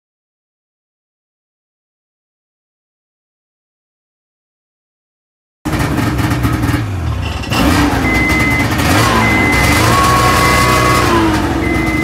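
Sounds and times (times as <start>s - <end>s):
snowmobile engine running: 5.7s - 12.0s
reverse warning beeps: 7.9s - 12.0s.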